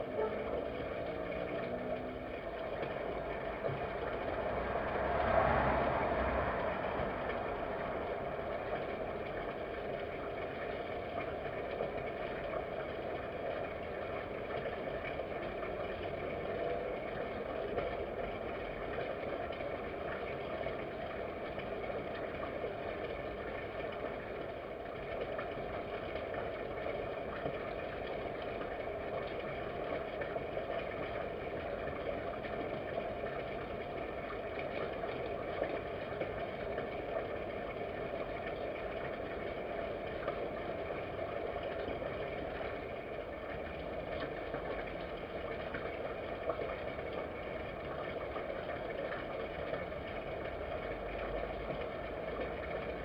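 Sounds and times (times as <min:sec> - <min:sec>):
background drone and hiss: 0:00.0 - 0:13.2.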